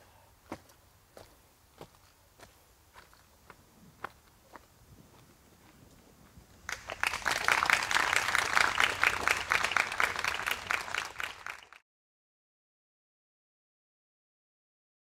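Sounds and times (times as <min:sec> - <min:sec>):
audience applauding: 0:06.6 - 0:11.8.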